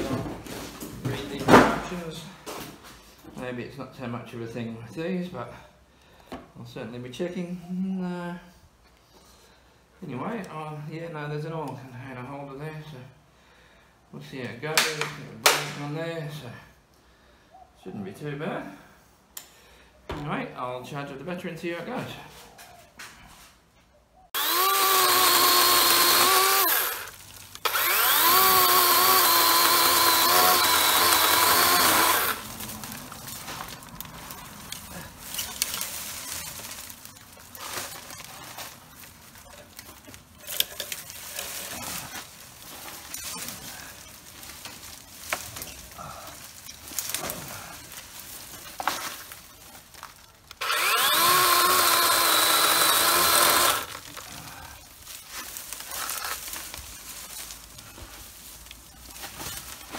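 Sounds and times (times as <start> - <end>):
electric chainsaw cutting branches: 24.4 - 38.3, 50.6 - 54.3
branches rustling and snapping: 24.4 - 59.9.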